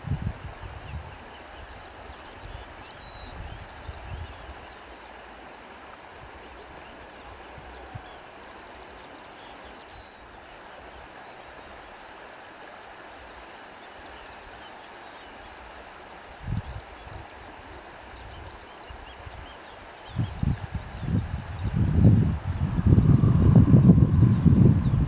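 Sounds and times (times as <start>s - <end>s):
wind gusts buffeting microphone: 0.0s - 1.8s, 16.4s - 19.5s, 20.1s - 25.0s
wind blowing: 0.0s - 8.9s, 15.7s - 25.0s.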